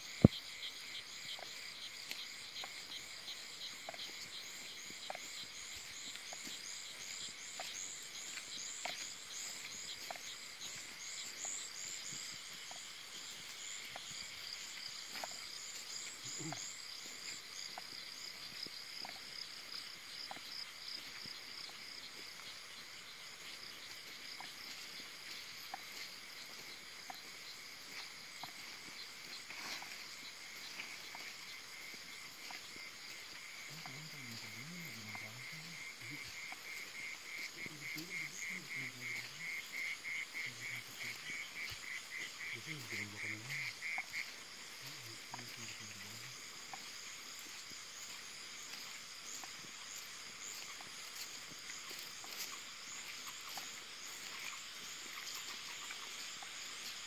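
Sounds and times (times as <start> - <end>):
frog croaking: 0.0 - 57.0
insects trilling: 0.0 - 57.0.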